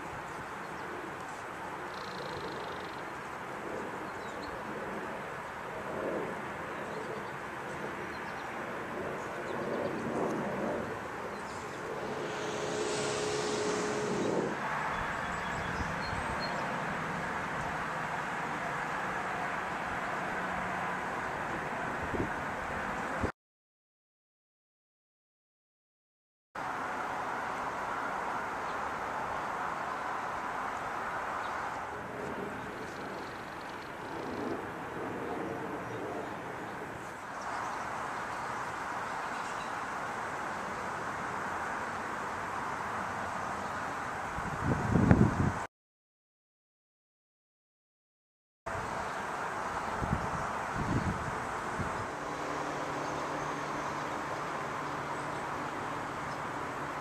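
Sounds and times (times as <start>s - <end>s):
steady outdoor background rush: 0.0s - 23.3s, 26.6s - 45.7s, 48.7s - 57.0s
humming tone and hiss: 9.2s - 20.4s, 48.7s - 57.0s
distant engine rumble: 10.7s - 18.6s.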